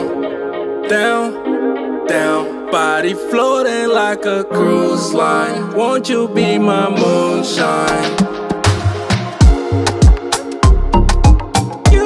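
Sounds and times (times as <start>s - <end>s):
kick drum hits: 9.4s - 12.0s.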